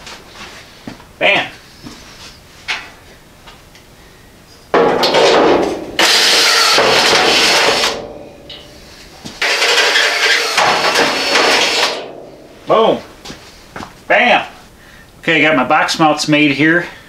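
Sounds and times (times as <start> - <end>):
cordless drill boring through steel: 6.0 - 8.0, 9.4 - 12.0.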